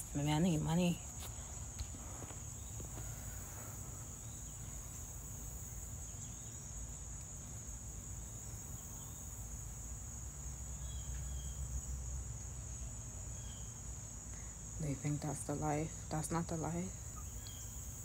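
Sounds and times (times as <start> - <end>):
insects trilling: 0.0 - 18.0.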